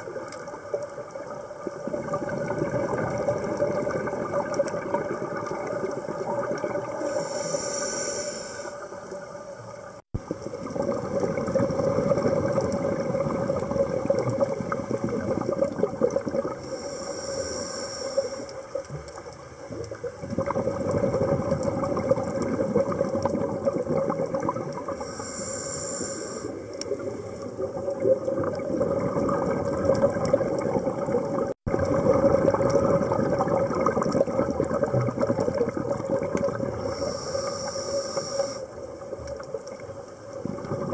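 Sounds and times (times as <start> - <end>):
crackling exhaled bubbles: 0.0 - 40.9
regulator inhalation hisses: 7.0 - 9.1, 16.6 - 18.6, 25.0 - 27.4, 36.8 - 38.7.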